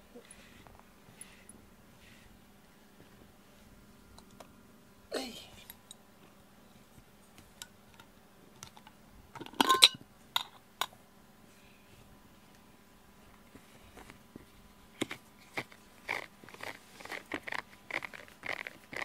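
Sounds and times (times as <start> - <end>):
jar lid clicking and clinking: 9.4 - 10.6.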